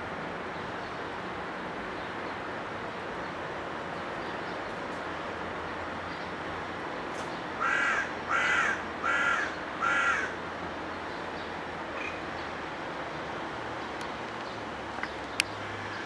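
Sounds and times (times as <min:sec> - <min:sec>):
steady background hum: 0:00.0 - 0:16.0
bird calling: 0:07.6 - 0:10.4, 0:12.0 - 0:12.5.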